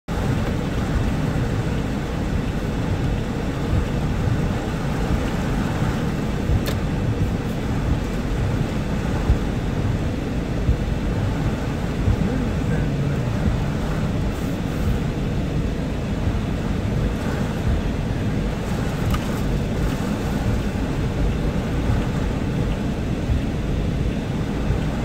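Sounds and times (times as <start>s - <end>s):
heavy rain on car roof: 0.1s - 25.0s
sharp click: 6.6s - 6.8s.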